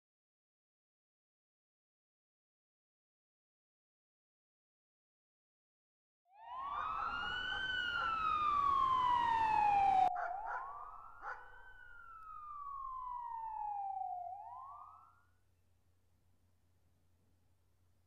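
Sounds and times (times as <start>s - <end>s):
faint hum: 6.4s - 14.7s
emergency vehicle siren wailing: 6.4s - 15.3s.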